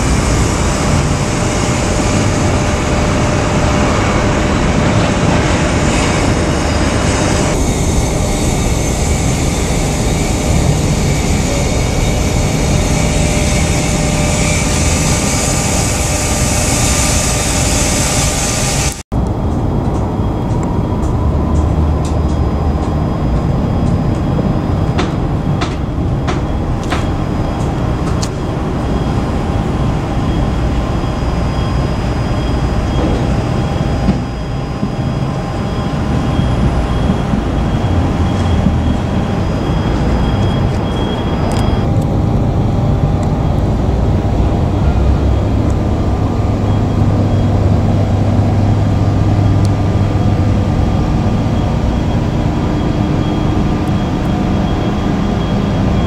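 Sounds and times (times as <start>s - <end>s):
traffic rumble: 0.0s - 17.7s, 18.8s - 56.0s.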